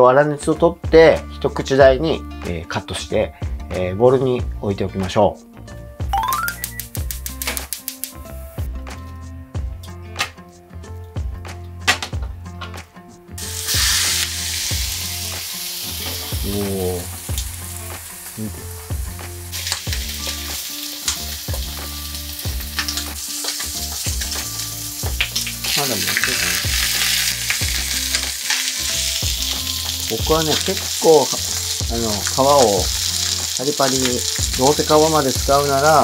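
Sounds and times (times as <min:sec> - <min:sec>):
scattered clicks: 0:06.5 - 0:08.2
chicken sizzling in a pan: 0:13.4 - 0:36.0.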